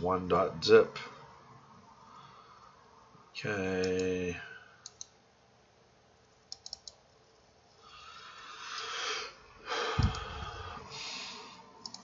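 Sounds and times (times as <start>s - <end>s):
mouse clicks: 6.5s - 7.0s
person breathing close to microphone: 7.8s - 11.8s.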